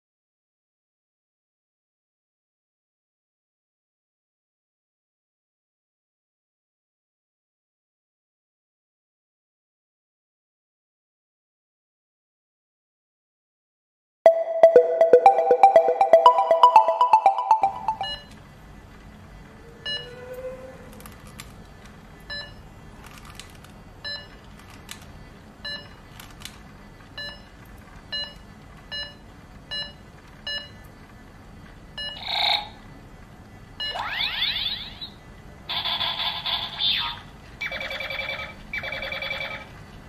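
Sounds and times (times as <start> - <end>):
electronic sound effects: 14.3 - 18.2
toy robot beeping: 33.9 - 39.7.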